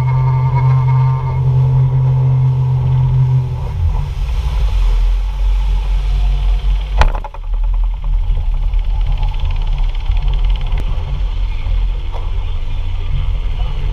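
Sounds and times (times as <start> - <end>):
boat engine running: 0.0 - 13.9
water noise: 0.0 - 13.9
wind noise: 0.0 - 13.9
sharp thump: 7.0 - 8.3.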